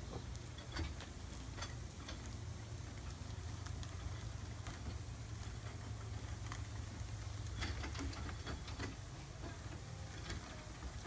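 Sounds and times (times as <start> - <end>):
steady low hum: 0.0 - 11.0
light clicks and taps from metal hoist: 0.1 - 2.4, 7.4 - 10.7.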